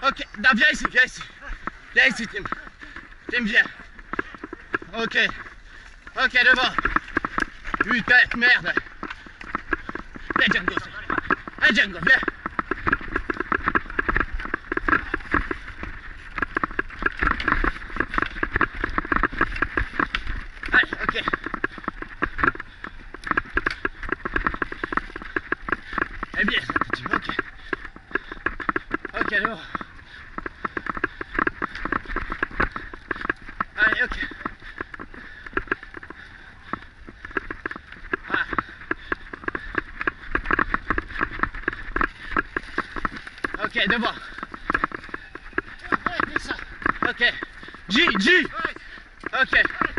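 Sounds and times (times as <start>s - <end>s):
mountain bike rattling over dirt: 0.0s - 49.9s.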